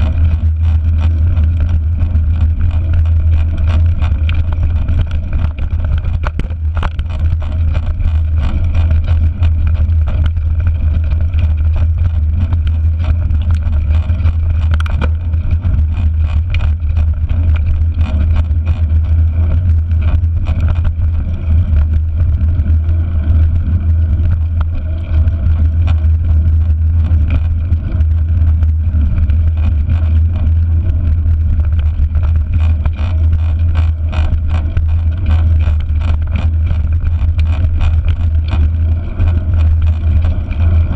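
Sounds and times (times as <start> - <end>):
bike rattling and knocking: 0.0 - 40.9
wind rumbling on camera: 0.0 - 40.9.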